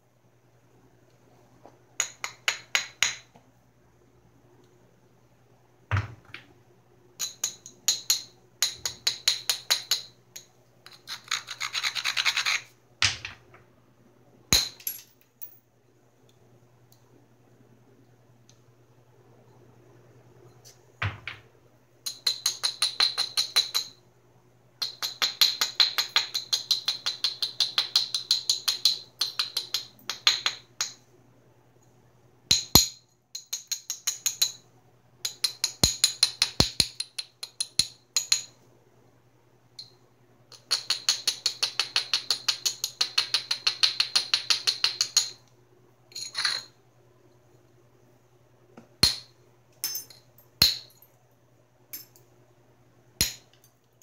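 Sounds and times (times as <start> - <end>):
abrader rubbing stone edge: 10.9 - 12.7.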